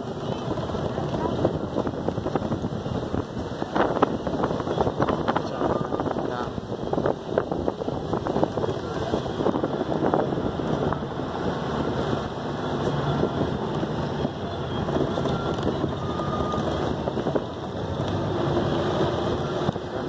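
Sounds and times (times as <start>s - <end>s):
vehicle engine and road rumble: 0.0s - 20.0s
wind buffeting microphone: 0.0s - 20.0s.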